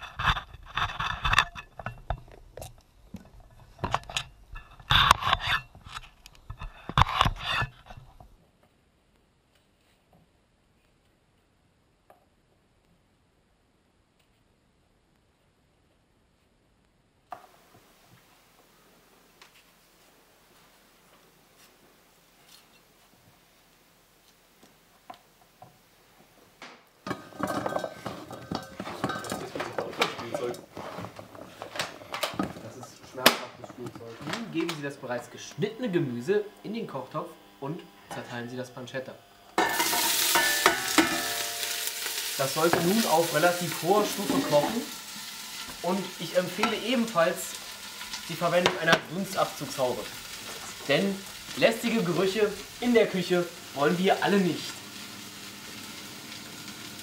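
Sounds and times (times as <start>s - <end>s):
food clattering into metal pot: 27.0s - 34.8s, 39.6s - 49.1s.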